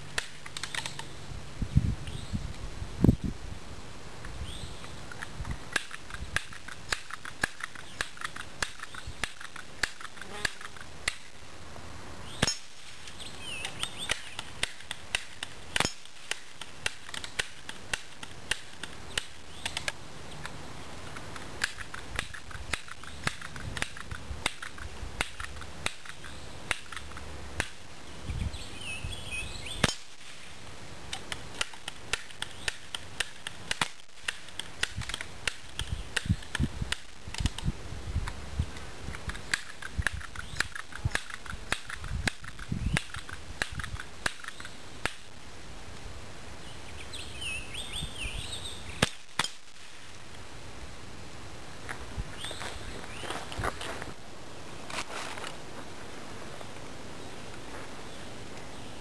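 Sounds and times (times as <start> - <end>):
pellet pistol pops: 0.1 - 1.1, 5.1 - 11.4, 12.3 - 27.8, 29.8 - 30.2, 31.1 - 38.4, 39.1 - 45.3, 49.0 - 49.7.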